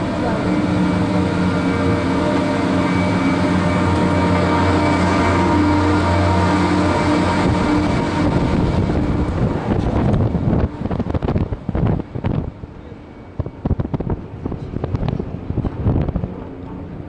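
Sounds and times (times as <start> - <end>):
cable car mechanical hum: 0.0 - 17.0
wind buffeting microphone: 0.0 - 17.0.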